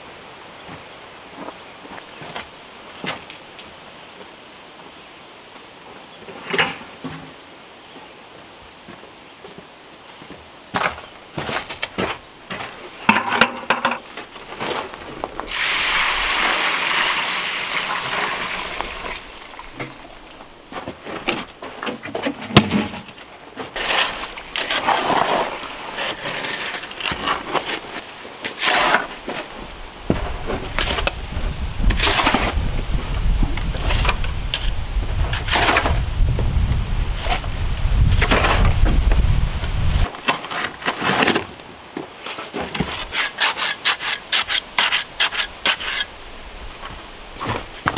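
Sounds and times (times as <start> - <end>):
water pouring from bucket: 15.5 - 20.1
shovel scraping concrete in tub: 23.8 - 29.5, 31.8 - 32.6, 33.8 - 36.0, 38.1 - 38.8, 42.3 - 46.1.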